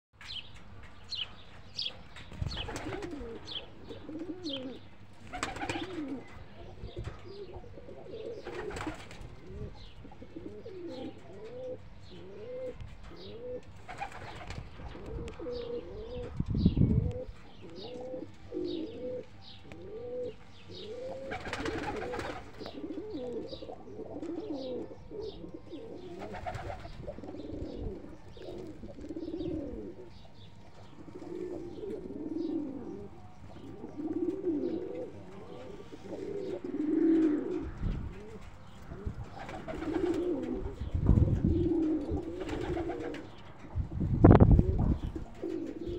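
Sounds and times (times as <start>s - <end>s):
pigeons cooing: 0.9s - 45.9s.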